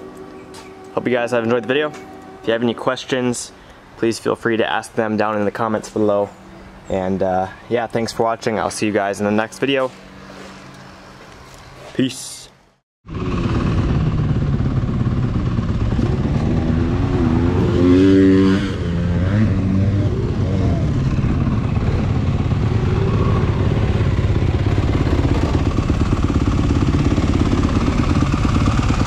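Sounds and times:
dirt bike engine revving: 0:13.1 - 0:29.0.

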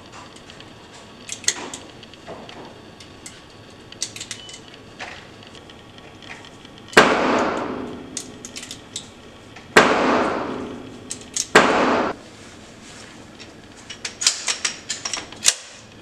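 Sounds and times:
cartridges clicking into magazine: 0:01.2 - 0:01.8, 0:04.0 - 0:04.7, 0:07.4 - 0:09.1, 0:11.1 - 0:11.6, 0:14.0 - 0:15.8
gunshots echoing indoors: 0:06.9 - 0:08.8, 0:09.7 - 0:12.2.

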